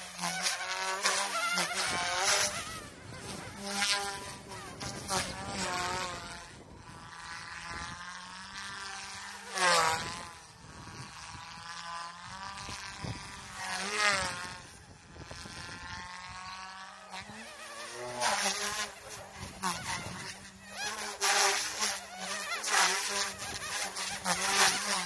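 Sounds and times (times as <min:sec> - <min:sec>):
rc helicopter buzzing whine: 0:00.0 - 0:25.0.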